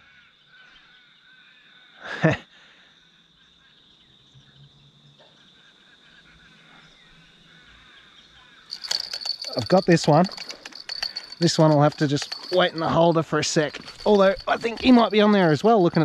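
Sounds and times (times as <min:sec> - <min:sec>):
faint bird chirping: 0:00.0 - 0:16.0
high-pitched insect drone: 0:07.9 - 0:16.0.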